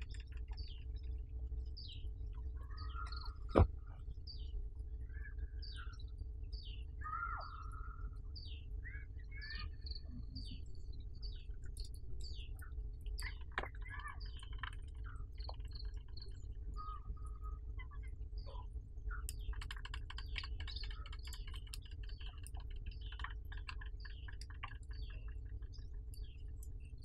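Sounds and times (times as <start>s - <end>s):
steady low rumble: 0.0s - 19.5s
birds chirping and singing: 1.7s - 3.7s, 4.3s - 26.6s.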